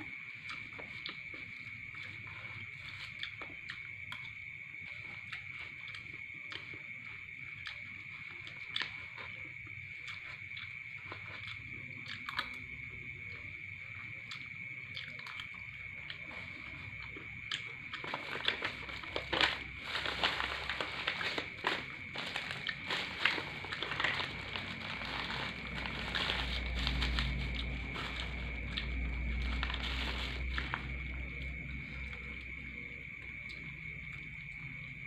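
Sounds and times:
paper and plastic bag crinkling: 18.0 - 31.3.

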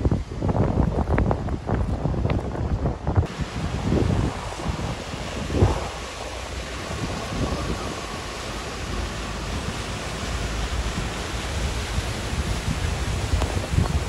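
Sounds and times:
wind noise on microphone: 0.0 - 14.0
vehicles splashing through flood water: 3.2 - 14.0.

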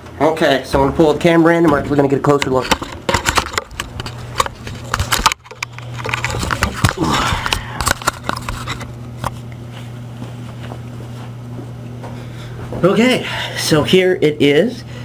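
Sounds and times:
steady low hum: 0.0 - 15.0
camera handling knocks and rustling: 2.7 - 7.0.

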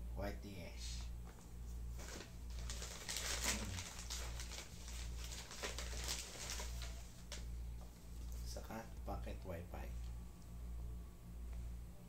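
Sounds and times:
low pulsing hum: 0.0 - 12.0
plastic packaging rustling: 1.3 - 8.6.

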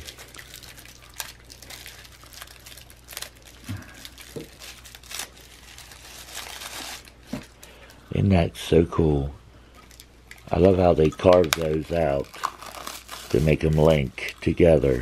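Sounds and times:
tissue paper crinkling: 0.0 - 8.0, 11.6 - 15.0.

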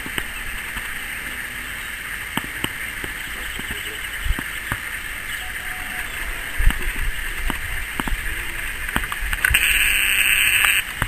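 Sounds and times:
high-pitched hiss: 0.0 - 11.0
wind rumble on microphone: 2.5 - 11.0
scattered clicks: 6.6 - 11.0.

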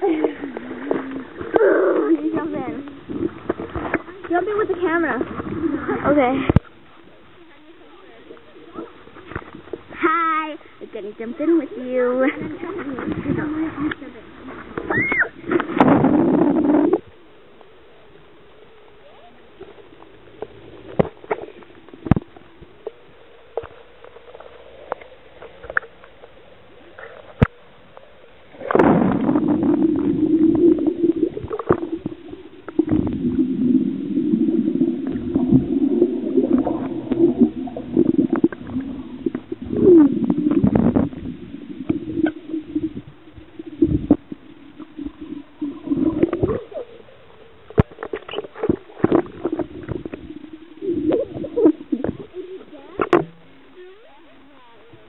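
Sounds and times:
rumble of bubbles and water: 0.0 - 55.0
underwater rush of water: 0.0 - 55.0
underwater clicks and pops: 20.4 - 23.8, 36.4 - 42.9, 47.7 - 50.3, 52.9 - 53.6.

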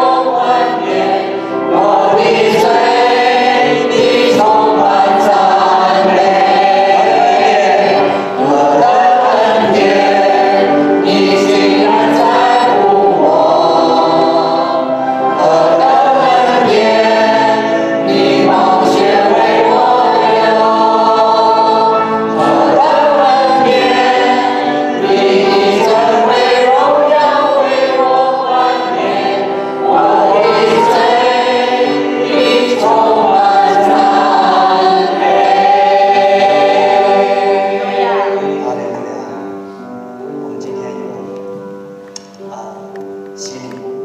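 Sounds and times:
group singing a hymn: 0.0 - 42.8.

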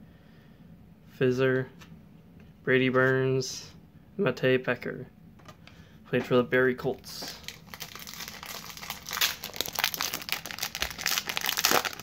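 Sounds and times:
foil wrapper crinkling and tearing: 7.2 - 12.0.

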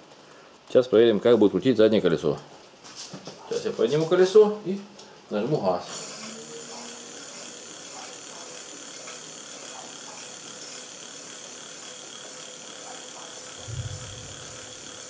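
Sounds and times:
electric motor whine: 5.8 - 15.0.

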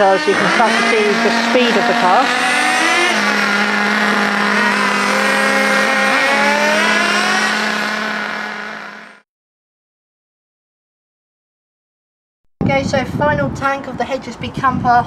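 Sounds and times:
model engine running high: 0.0 - 9.2.

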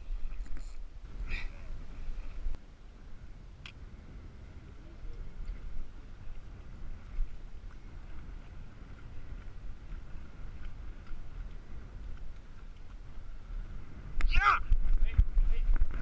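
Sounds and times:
wind rumble on microphone: 0.0 - 16.0
light ticks: 3.6 - 3.8, 10.5 - 13.0.

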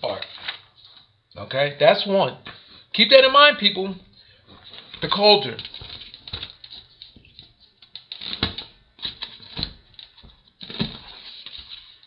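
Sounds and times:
paper rustling: 0.2 - 1.1, 4.5 - 12.0.

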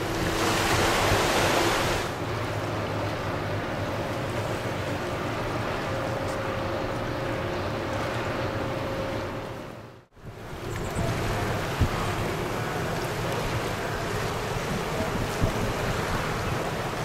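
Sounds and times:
ferry engines humming: 0.0 - 17.0
wind and water rushing: 0.0 - 17.0
wind gust on microphone: 10.2 - 12.8, 13.4 - 17.0.

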